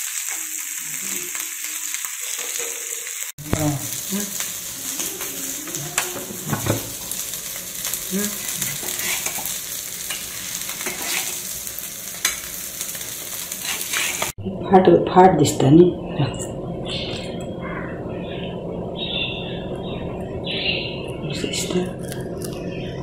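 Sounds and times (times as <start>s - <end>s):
fish sizzling in oil: 0.0s - 14.4s
metal spatula scraping pan: 8.4s - 11.5s, 13.6s - 14.3s.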